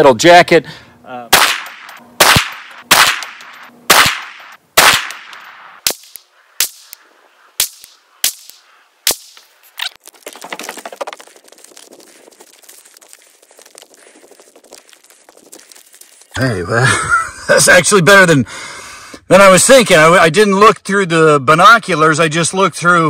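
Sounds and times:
rifle gunshots: 1.3s - 6.9s.

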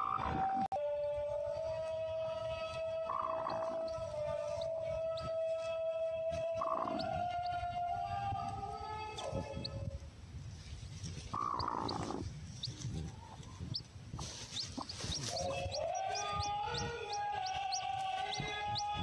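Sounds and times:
chick cheeping: 3.1s - 5.4s, 6.4s - 7.7s, 11.4s - 19.0s
background music: 15.4s - 19.0s.

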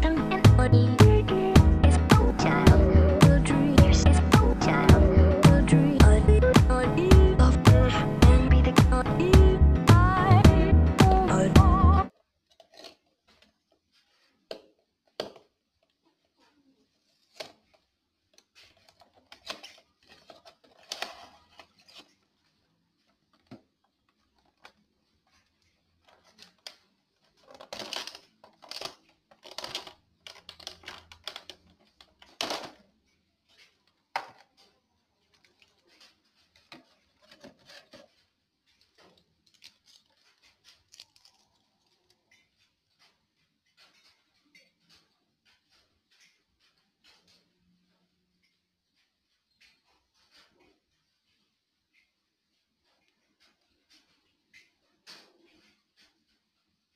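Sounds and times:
plastic packaging crinkling: 12.1s - 43.1s.

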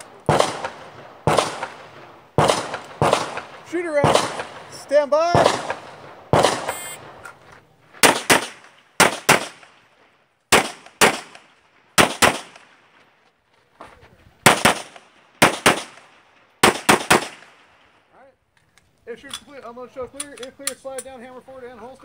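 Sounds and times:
pistol shots with echo: 0.2s - 7.2s, 8.0s - 9.9s, 10.5s - 12.8s, 14.4s - 17.8s.

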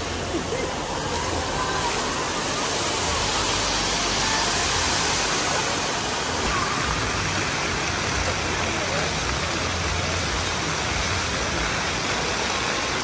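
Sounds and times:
water jets splashing into pool: 0.0s - 13.0s.

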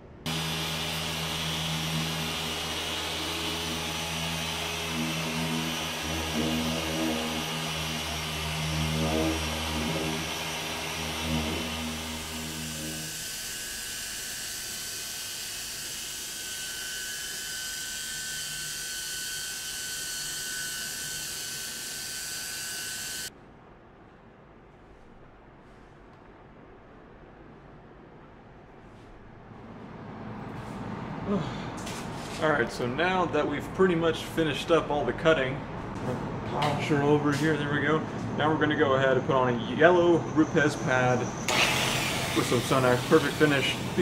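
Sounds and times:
polisher motor hum: 0.3s - 23.3s, 41.5s - 44.0s.

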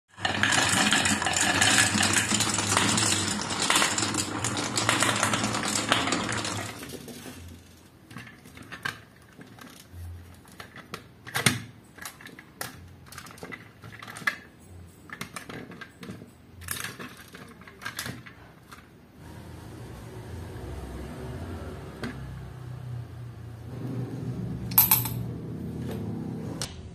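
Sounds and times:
marbles rattling in wooden bowl: 0.2s - 10.0s
toy truck clicks and knocks: 7.6s - 18.9s.

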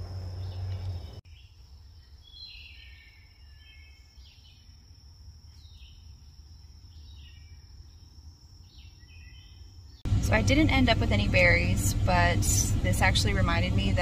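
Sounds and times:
birds chirping: 0.0s - 4.8s, 5.5s - 14.0s
low rumble: 10.0s - 14.0s.

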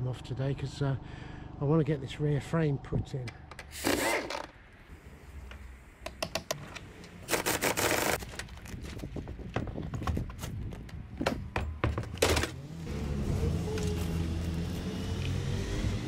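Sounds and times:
power tool running in bursts: 7.3s - 8.2s.

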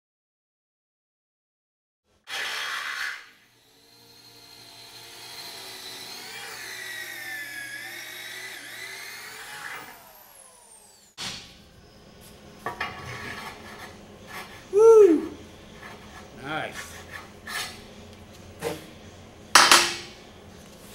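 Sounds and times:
rough grinding noise: 12.7s - 14.7s.

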